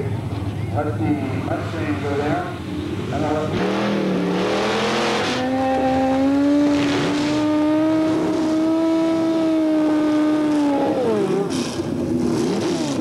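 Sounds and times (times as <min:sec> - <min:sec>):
racing engine revving high: 0:03.1 - 0:13.0.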